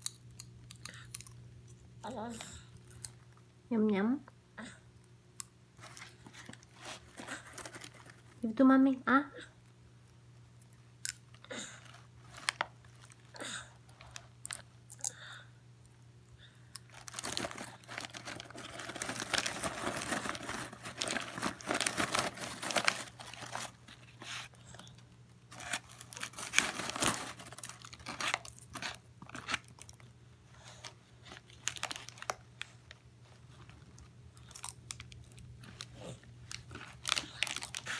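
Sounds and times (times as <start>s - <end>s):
paper bag crinkling: 5.8s - 8.4s, 16.9s - 24.9s, 25.5s - 30.0s, 30.6s - 37.9s
crunchy chewing: 33.4s - 37.9s.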